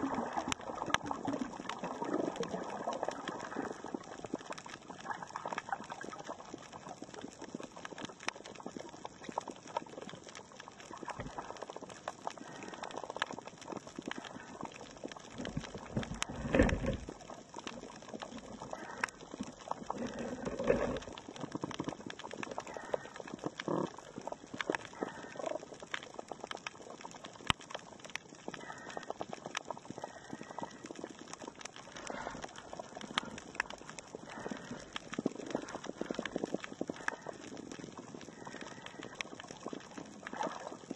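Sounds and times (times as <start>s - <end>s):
low underwater rumbles: 0.0s - 40.9s
snapping shrimp crackle: 0.0s - 40.9s.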